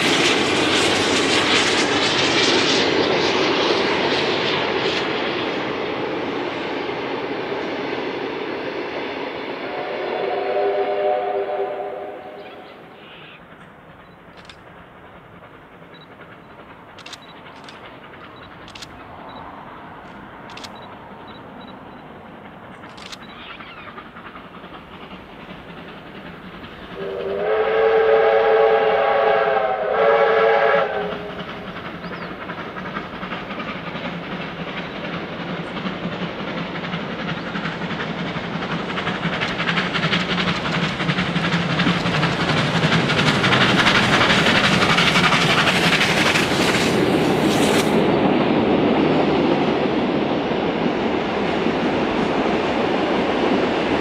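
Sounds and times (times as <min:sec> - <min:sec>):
steam locomotive exhaust: 0:00.0 - 0:54.0
steam locomotive whistle: 0:09.6 - 0:13.4, 0:27.0 - 0:31.6.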